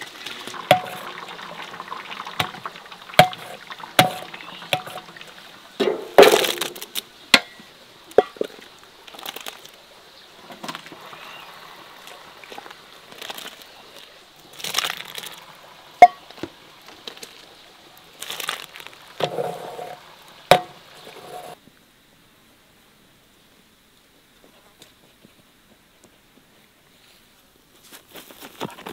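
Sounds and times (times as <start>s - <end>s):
hot liquid splashing: 0.0s - 7.5s, 10.4s - 21.6s.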